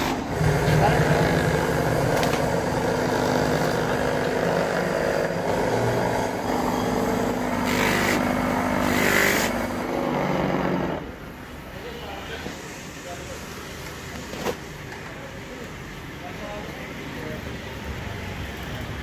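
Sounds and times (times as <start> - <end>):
rubber grinding on abrasive disc: 0.0 - 11.0
buffing motor humming: 0.3 - 11.0.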